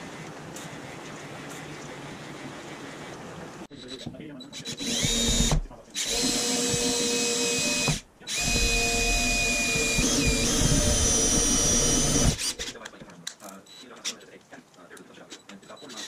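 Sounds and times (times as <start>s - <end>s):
cordless drill drilling into metal: 4.6s - 12.7s.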